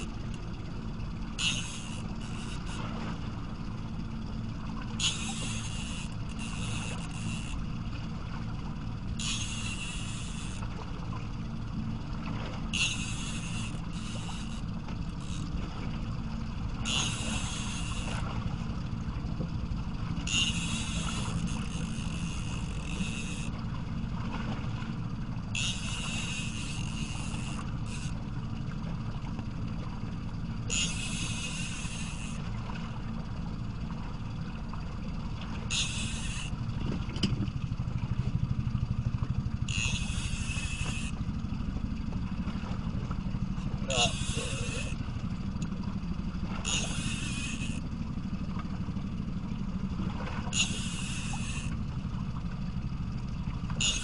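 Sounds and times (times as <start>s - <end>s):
fishing reel being cranked: 0.0s - 23.7s, 25.0s - 28.4s, 30.6s - 32.5s, 35.2s - 37.4s, 39.0s - 41.9s, 42.7s - 48.0s, 50.4s - 52.4s, 53.6s - 54.0s
outboard engine idling: 0.0s - 54.0s.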